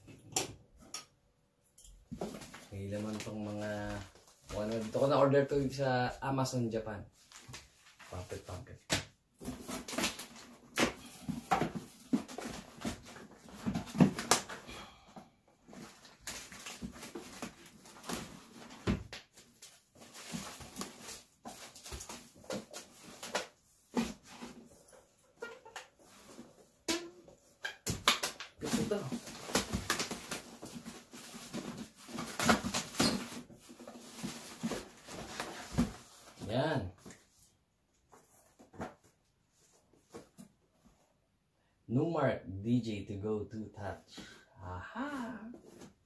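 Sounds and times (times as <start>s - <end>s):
rummaging in cardboard box: 9.4s - 14.6s, 15.6s - 25.2s, 28.6s - 37.2s.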